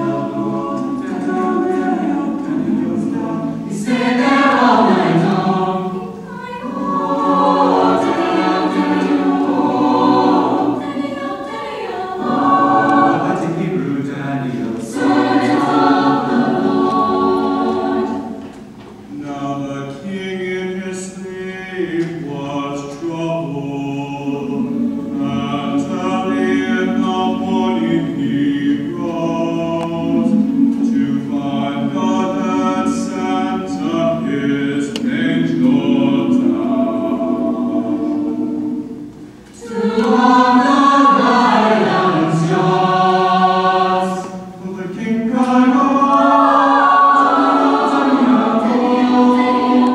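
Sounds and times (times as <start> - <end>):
choir singing chords: 0.0 - 49.9.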